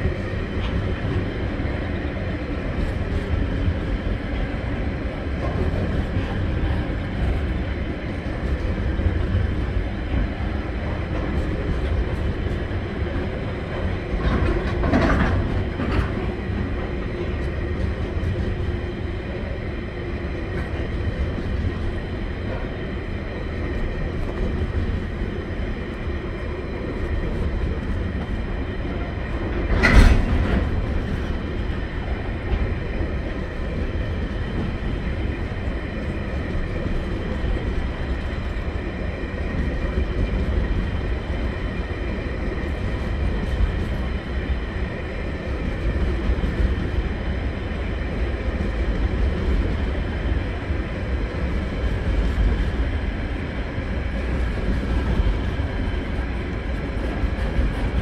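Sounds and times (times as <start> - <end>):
freight train rumbling past: 0.0 - 58.0
wheels clickety-clack on rails: 0.0 - 58.0.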